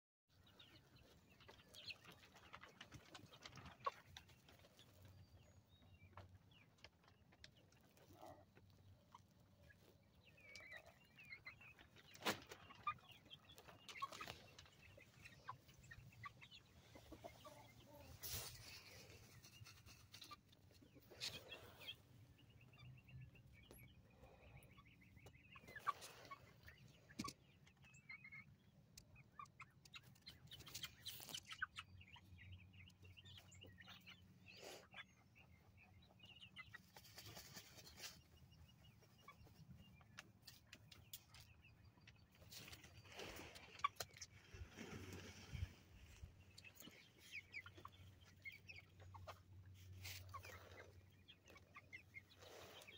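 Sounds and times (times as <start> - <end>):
chickens clucking and peeping: 0.3 - 52.9.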